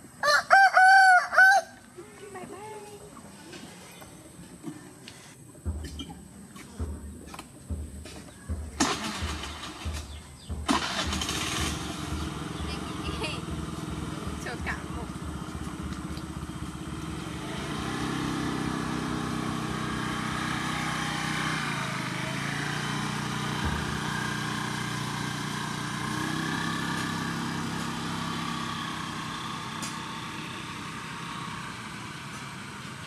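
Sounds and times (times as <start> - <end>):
scooter engine pulling away: 7.7 - 33.0.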